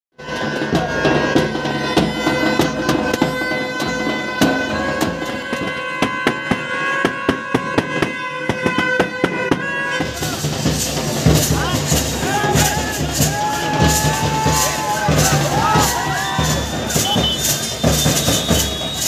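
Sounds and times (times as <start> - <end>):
plastic horns droning: 0.2 - 10.7
large drums beaten fast: 0.2 - 19.0.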